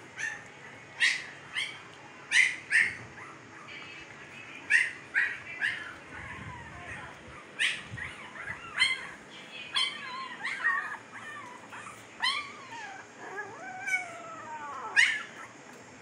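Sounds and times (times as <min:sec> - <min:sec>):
puppies whimpering and squealing: 0:04.7 - 0:15.6.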